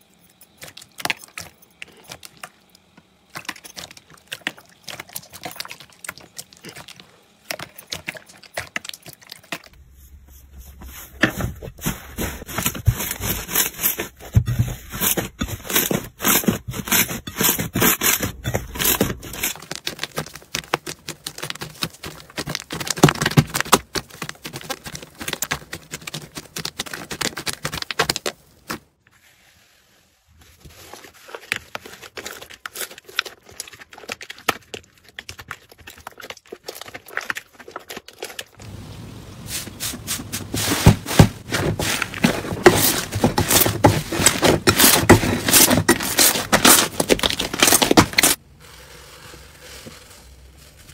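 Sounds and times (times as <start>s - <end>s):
slime squishing and crackling: 11.8s - 28.4s, 30.7s - 38.6s.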